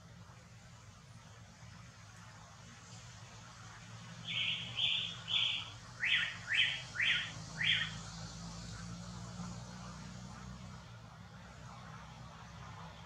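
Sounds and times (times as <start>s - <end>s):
bird calling buzzy notes: 4.2s - 8.0s.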